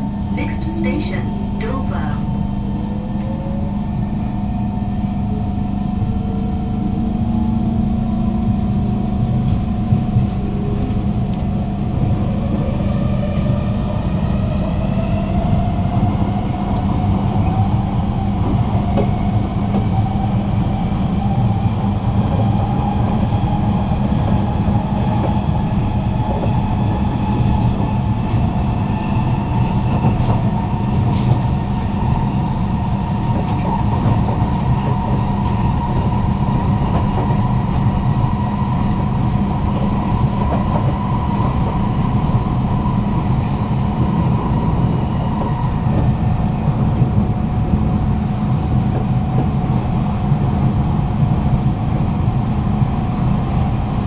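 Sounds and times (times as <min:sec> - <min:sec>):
rail rumble: 0:00.0 - 0:54.0.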